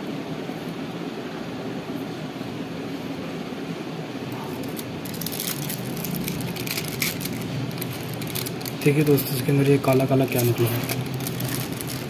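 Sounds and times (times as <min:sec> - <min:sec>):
plastic and foil crinkling: 0:04.5 - 0:12.0.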